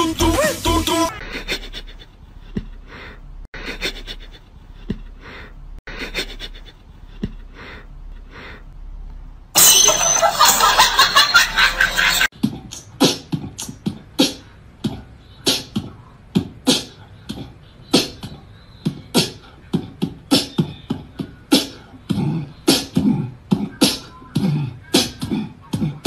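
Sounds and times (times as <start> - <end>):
beatbox percussive beat: 0.0 - 1.2, 12.3 - 26.0.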